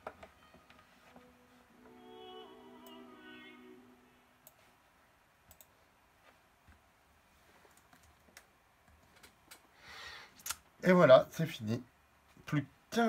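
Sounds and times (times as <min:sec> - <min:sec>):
sung music: 0:00.4 - 0:04.4
computer mouse clicks: 0:05.5 - 0:05.7.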